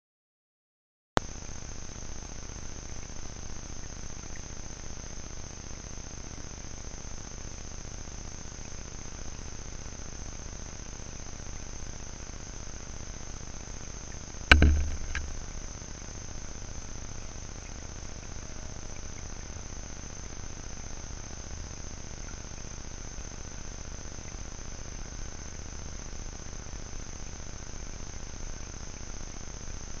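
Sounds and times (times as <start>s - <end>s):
insects chirping: 1.4s - 30.0s
sharp loud knock: 14.5s - 15.5s.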